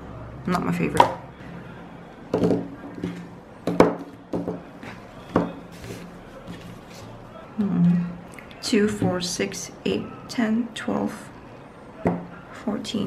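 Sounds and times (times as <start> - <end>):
paint tubes knocking on table: 2.3 - 4.6.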